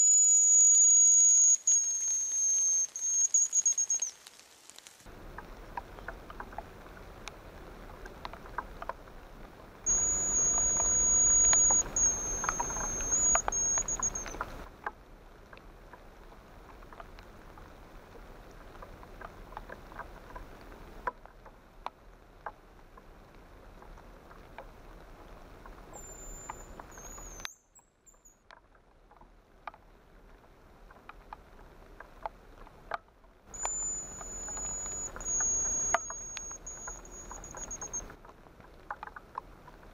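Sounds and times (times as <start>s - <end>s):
high thin bird whistles: 0.0s - 4.2s, 9.9s - 14.4s, 26.0s - 27.5s, 33.6s - 38.1s
light drizzle pattering: 0.7s - 27.5s, 28.2s - 39.9s
drips clicking: 9.9s - 14.6s, 33.5s - 38.2s.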